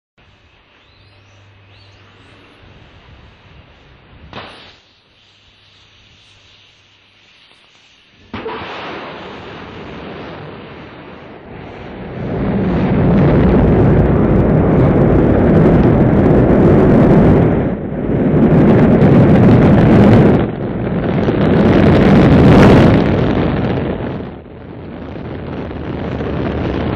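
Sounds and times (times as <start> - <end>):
rocket engine roaring: 8.1 - 26.9.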